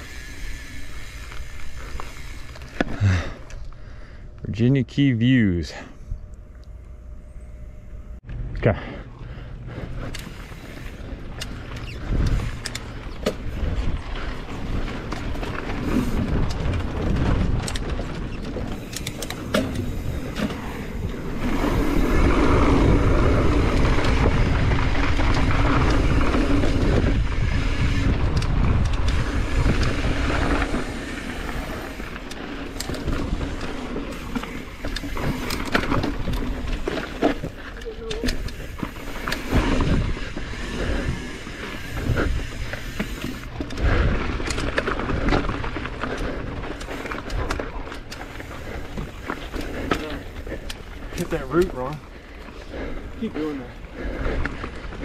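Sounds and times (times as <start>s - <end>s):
tyres rolling over dirt: 9.2s - 55.0s
bike knocks and rattles: 9.8s - 52.6s.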